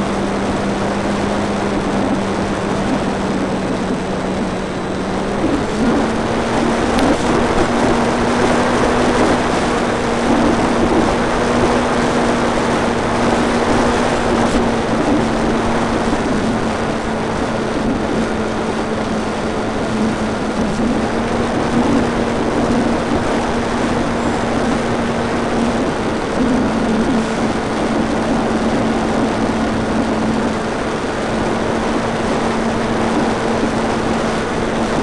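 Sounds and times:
electric motor and propeller hum: 0.0s - 35.0s
wind rush over microphone: 0.0s - 35.0s.

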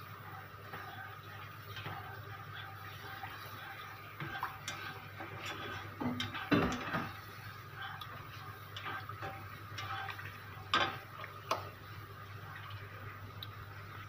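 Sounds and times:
spatula scraping frying pan: 0.7s - 11.6s.

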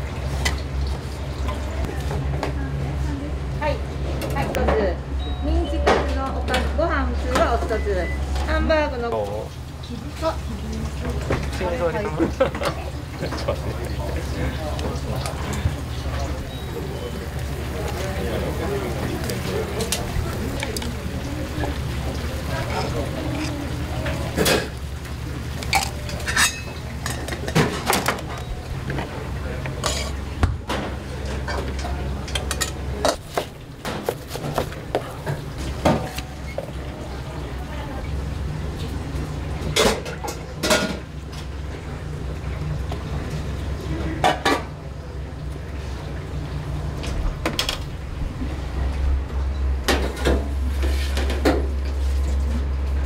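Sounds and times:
dishes and utensils clinking: 22.6s - 24.8s, 25.6s - 29.1s, 29.7s - 36.8s.

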